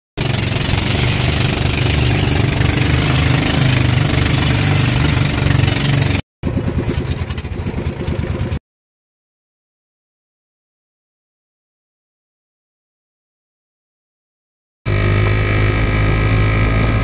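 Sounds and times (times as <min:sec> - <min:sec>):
motorboat engine running: 0:00.2 - 0:08.6, 0:14.9 - 0:17.0.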